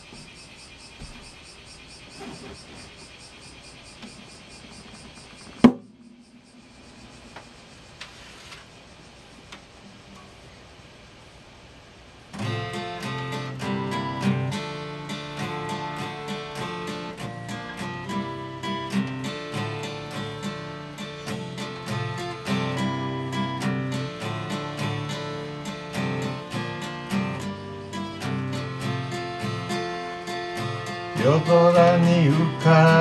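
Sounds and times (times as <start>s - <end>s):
acoustic guitar strumming: 5.6s - 7.6s, 12.3s - 33.0s.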